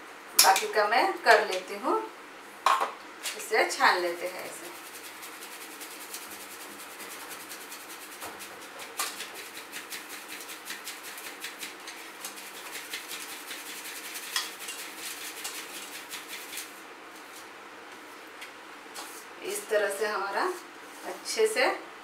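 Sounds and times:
powder sifting through sieve: 0:03.4 - 0:17.5.

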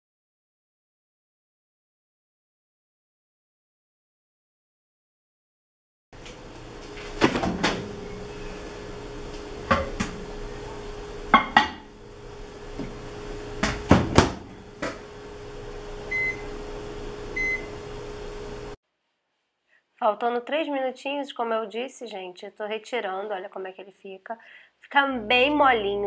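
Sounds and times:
steady low hum: 0:06.2 - 0:18.8, 0:25.1 - 0:26.0
short beeps from touch panel: 0:16.1 - 0:16.4, 0:17.4 - 0:17.7.

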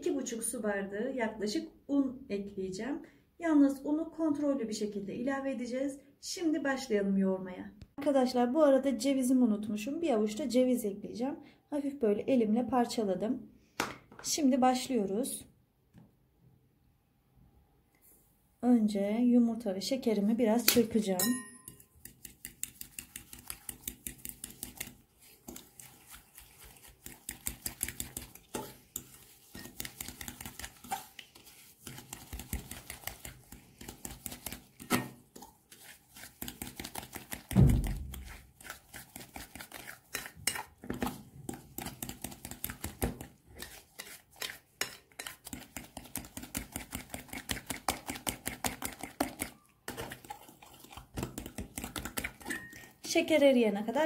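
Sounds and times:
loud thump: 0:37.6 - 0:38.2.

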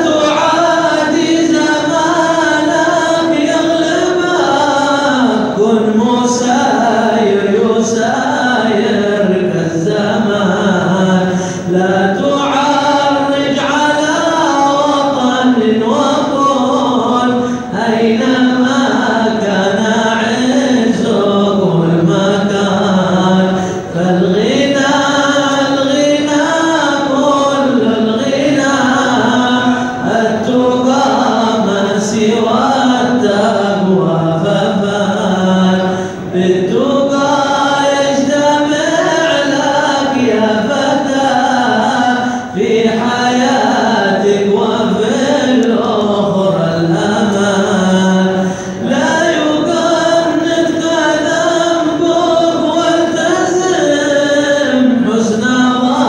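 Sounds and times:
men chanting unaccompanied: 0:00.0 - 0:56.0.

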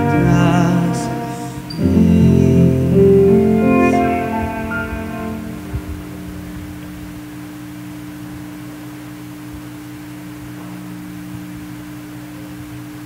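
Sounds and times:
string music: 0:00.0 - 0:07.0
faint hiss: 0:00.0 - 0:13.0
low electrical hum: 0:00.0 - 0:13.0.

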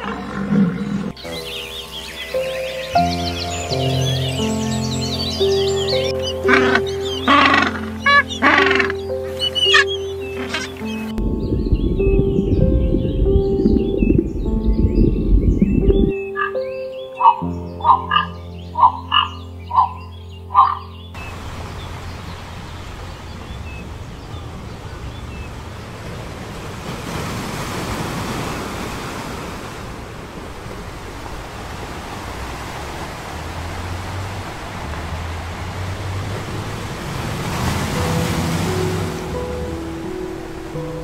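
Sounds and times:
short croaking calls: 0:06.2 - 0:11.1, 0:17.2 - 0:20.9
low steady drone: 0:10.1 - 0:16.2
surf washing onto beach: 0:21.2 - 0:41.0.

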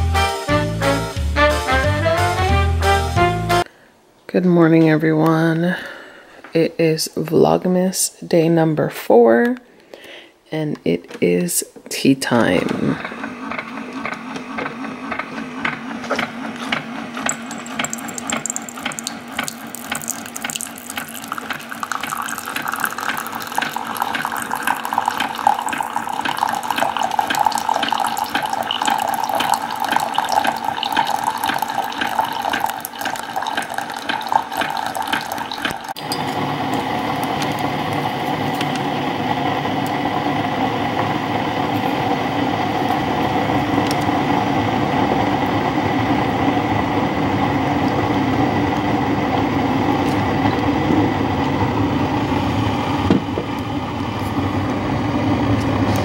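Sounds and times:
water pouring into mug: 0:17.3 - 0:38.9.

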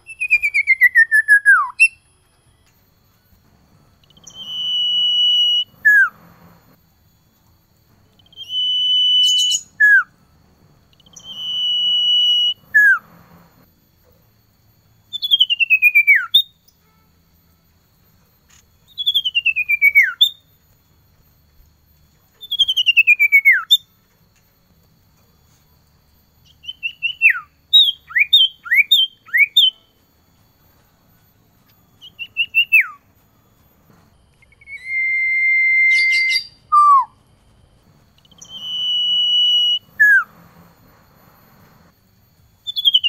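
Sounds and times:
bird trilled whistles: 0:00.0 - 0:02.1, 0:04.0 - 0:06.5, 0:08.2 - 0:10.1, 0:10.9 - 0:13.4, 0:15.1 - 0:16.8, 0:18.8 - 0:20.5, 0:22.3 - 0:23.9, 0:26.4 - 0:29.9, 0:32.0 - 0:33.1, 0:34.4 - 0:37.2, 0:38.2 - 0:40.4, 0:42.6 - 0:43.0
bird whistling calls: 0:04.0 - 0:06.5, 0:08.2 - 0:10.1, 0:10.9 - 0:13.4, 0:18.9 - 0:20.4, 0:22.4 - 0:23.9, 0:26.5 - 0:29.8, 0:32.0 - 0:33.0, 0:34.4 - 0:37.2, 0:38.2 - 0:40.4, 0:42.6 - 0:43.0.

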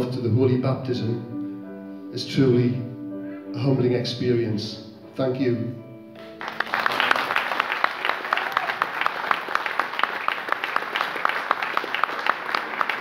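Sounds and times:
congregation applauding: 0:06.2 - 0:13.0.

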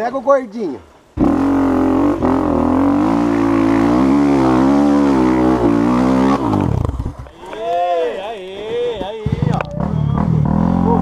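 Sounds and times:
dirt bike engine revving: 0:01.2 - 0:07.2, 0:09.2 - 0:11.0.

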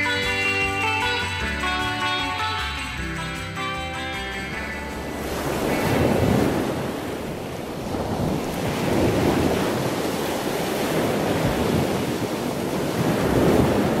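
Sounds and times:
ocean surf washing in: 0:04.2 - 0:14.0.

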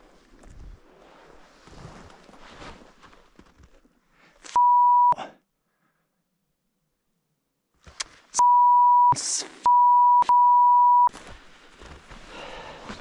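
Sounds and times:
faint shuffling: 0:00.0 - 0:03.9, 0:11.0 - 0:13.0
censor bleep: 0:04.6 - 0:05.2, 0:08.4 - 0:11.1.

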